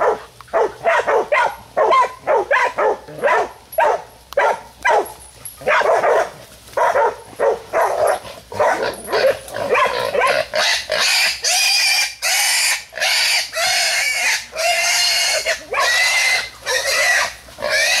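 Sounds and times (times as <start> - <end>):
puppies barking: 0.0 - 18.0
hog squealing: 9.2 - 18.0.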